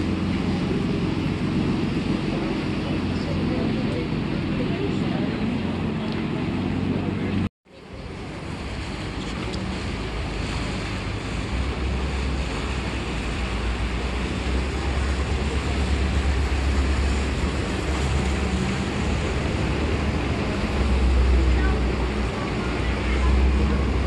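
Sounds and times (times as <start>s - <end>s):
rushing outdoor noise: 0.0s - 24.0s
wind buffeting the microphone: 0.0s - 24.0s.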